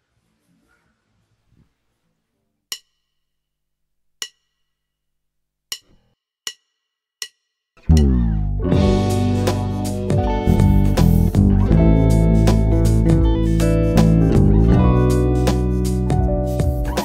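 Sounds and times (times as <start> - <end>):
electric basses: 7.8 - 17.0.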